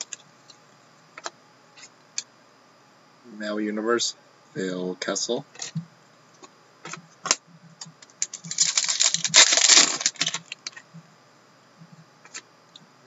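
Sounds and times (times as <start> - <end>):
trading cards clattering: 8.2 - 10.8.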